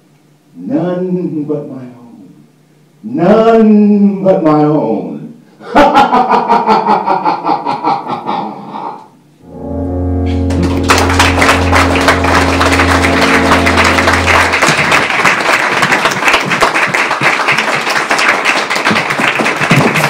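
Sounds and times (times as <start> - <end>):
held low chord: 9.4 - 16.0
fast percussive clatter: 18.9 - 20.0.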